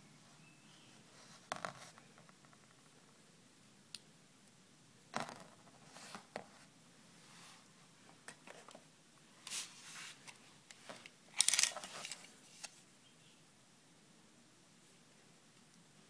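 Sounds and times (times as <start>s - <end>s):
small clicks and scrapes: 9.4s - 12.8s.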